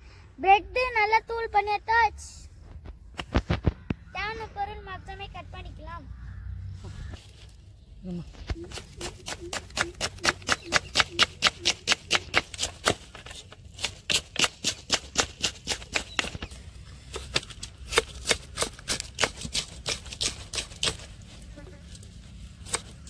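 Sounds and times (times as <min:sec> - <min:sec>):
knife chopping on wooden board: 0:08.5 - 0:13.1.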